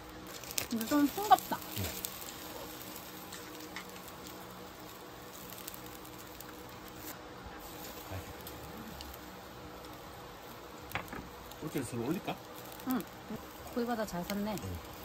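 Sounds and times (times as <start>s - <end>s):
rain pattering: 0.0s - 7.0s, 10.8s - 15.0s
faint steady hum: 0.0s - 15.0s.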